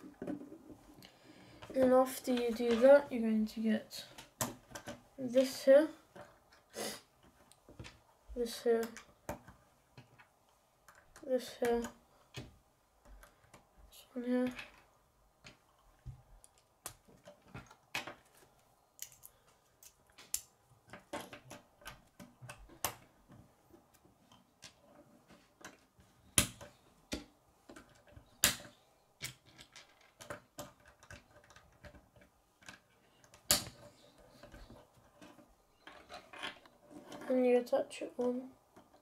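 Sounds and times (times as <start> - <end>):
plastic pieces clicking together: 19.0 - 23.1, 25.6 - 37.2.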